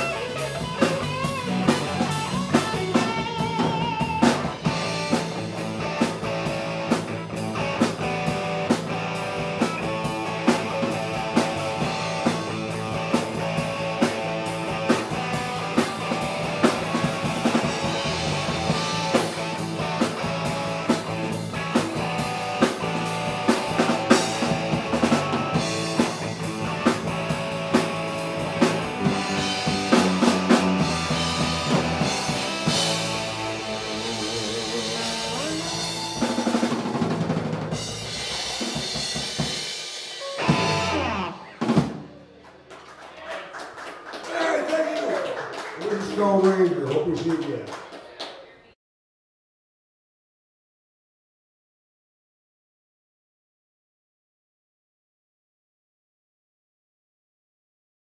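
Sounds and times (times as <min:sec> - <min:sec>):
live rock band playing: 0:00.0 - 0:42.4.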